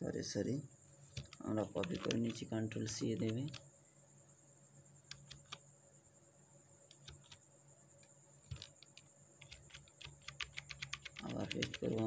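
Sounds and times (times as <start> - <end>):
low steady hum: 0.0 - 12.0
keyboard key clicks: 1.2 - 2.4, 8.4 - 12.0.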